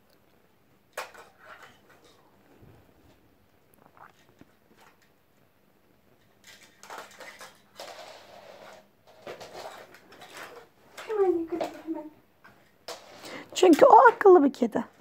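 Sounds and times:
cat rustling and scraping: 1.0s - 3.3s, 6.0s - 14.3s.

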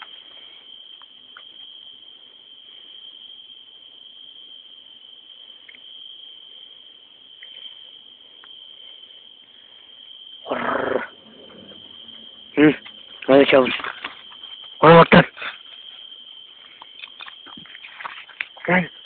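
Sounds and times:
cricket trilling: 0.0s - 19.0s
loud sudden noise: 10.5s - 14.1s.

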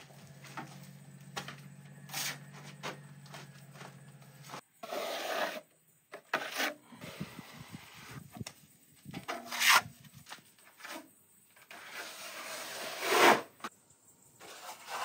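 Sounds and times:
trowel scraping plaster: 4.8s - 6.8s, 14.4s - 15.0s.

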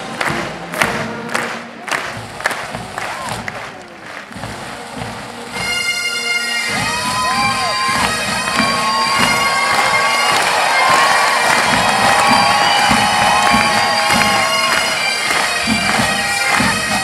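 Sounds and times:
crowd noise: 0.0s - 17.0s
bagpipes playing: 4.4s - 17.0s.

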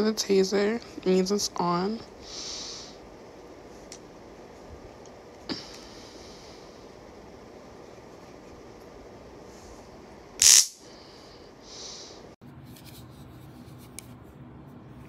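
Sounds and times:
loud electric zap: 10.4s - 10.9s.

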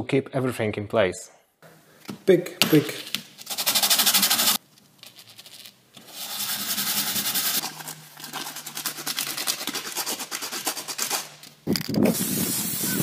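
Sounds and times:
washer rasping on sanding disc: 6.1s - 7.6s.

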